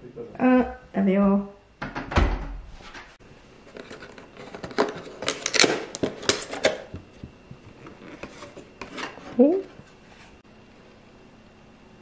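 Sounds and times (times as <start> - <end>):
cake box handled and opened: 3.6 - 10.4.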